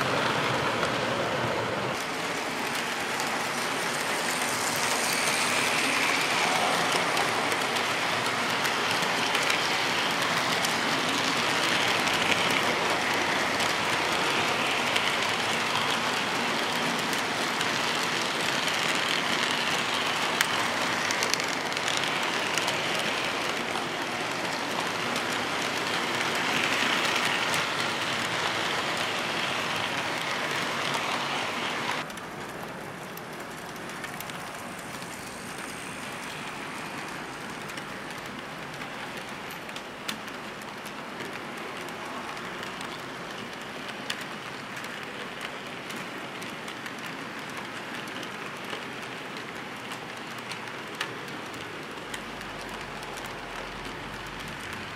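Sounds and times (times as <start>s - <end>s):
model train wheels rattling on track: 0.0s - 54.9s.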